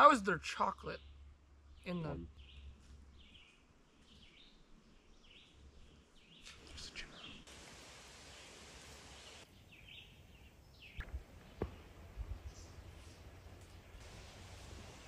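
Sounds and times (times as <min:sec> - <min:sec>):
steady hiss: 0:06.5 - 0:09.5, 0:11.0 - 0:15.0
bird chirps: 0:09.1 - 0:14.0.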